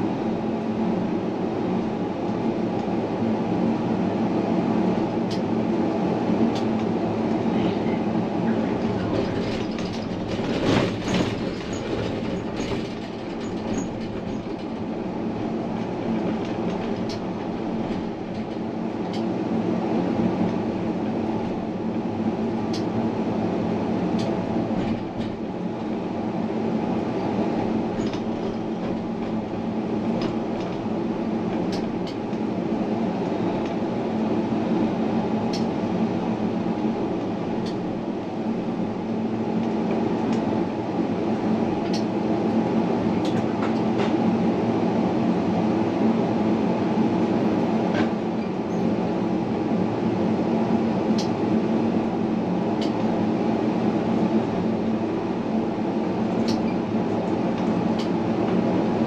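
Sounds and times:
tram motors and wheels rumbling: 0:00.0 - 0:59.0
sharp clicks of tram wheels: 0:08.8 - 0:19.3.

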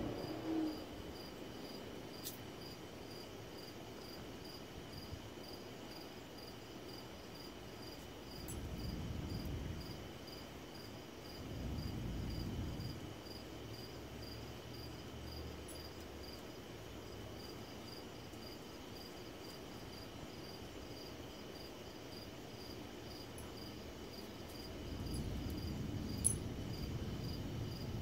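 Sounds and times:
low rumble: 0:00.0 - 0:01.0
crickets chirping: 0:00.0 - 0:28.0.

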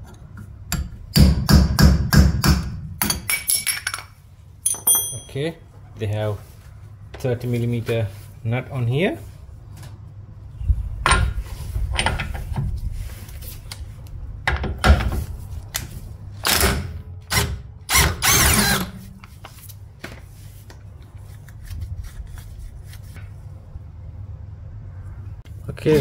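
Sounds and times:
impact wrench hammering: 0:00.7 - 0:03.5.

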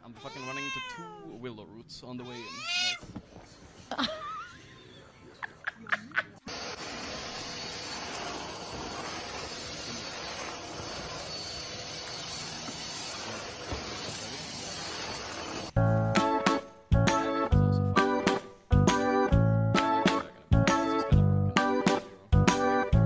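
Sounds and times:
stick vacuum cleaner hissing: 0:06.5 - 0:15.8.

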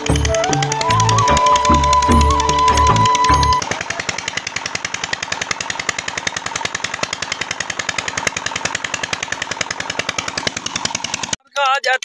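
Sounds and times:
background music: 0:00.0 - 0:03.6
diesel engine knocking steadily: 0:00.0 - 0:12.0.

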